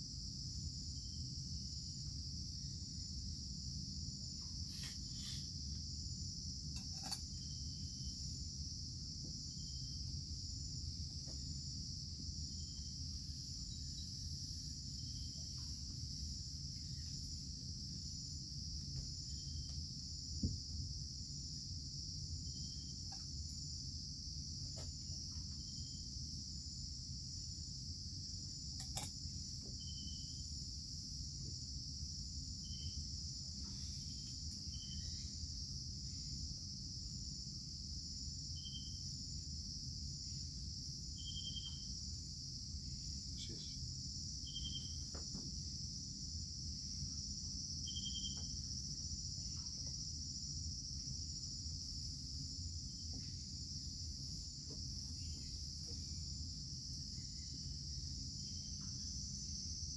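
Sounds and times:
insect chorus: 0:00.0 - 0:59.9
short insect chirp: 0:00.1 - 0:59.9.

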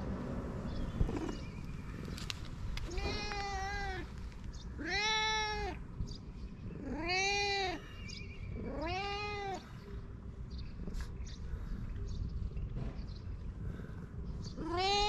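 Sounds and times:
cat meowing: 0:02.9 - 0:04.2, 0:04.8 - 0:05.8, 0:06.8 - 0:07.8, 0:08.6 - 0:09.8, 0:14.6 - 0:15.0.

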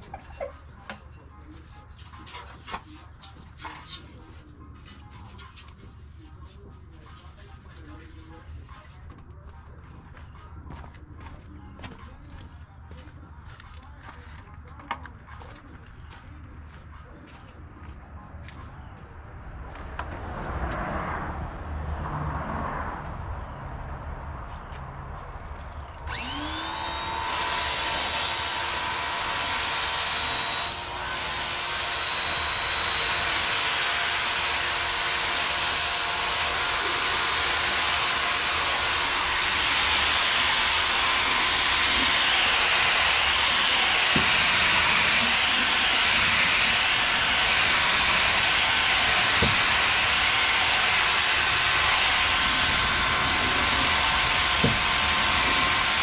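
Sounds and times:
pressure washer whine: 0:26.1 - 0:56.0.

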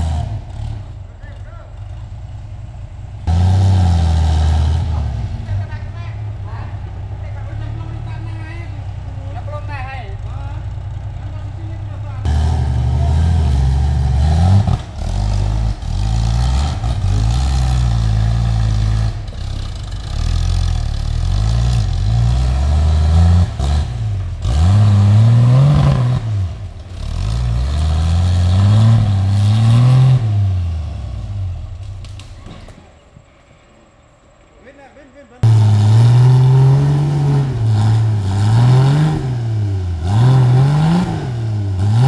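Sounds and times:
off-road vehicle engine revving hard: 0:00.0 - 0:01.0, 0:03.2 - 0:06.5, 0:11.8 - 0:31.8, 0:35.4 - 0:42.0.

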